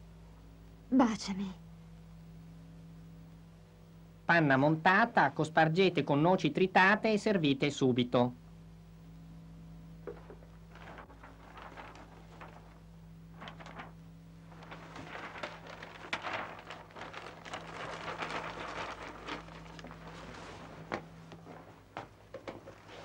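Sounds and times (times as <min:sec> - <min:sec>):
steady low hum: 0:00.0 - 0:23.0
paper rustling and crackling: 0:10.0 - 0:23.0.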